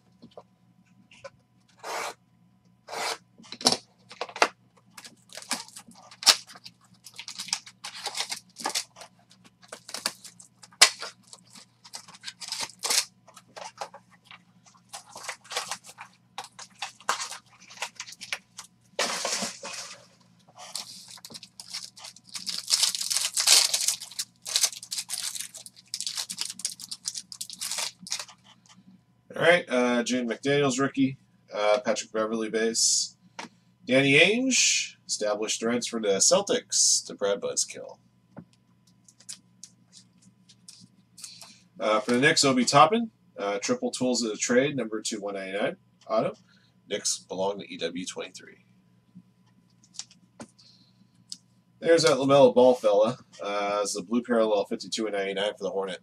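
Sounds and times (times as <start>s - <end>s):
faint low hum: 0.0s - 56.0s
foil wrappers crinkling: 4.9s - 28.6s
cards handled: 5.0s - 20.0s.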